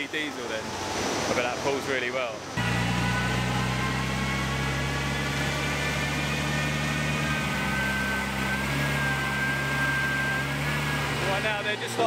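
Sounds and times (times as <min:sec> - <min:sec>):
car engine running at steady revs: 0:02.6 - 0:12.0
thin high whine: 0:02.6 - 0:12.0.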